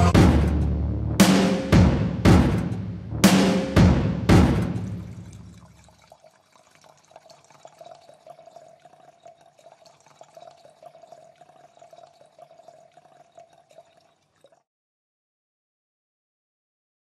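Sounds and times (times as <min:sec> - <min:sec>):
liquid dripping and crackling: 0:04.7 - 0:14.7.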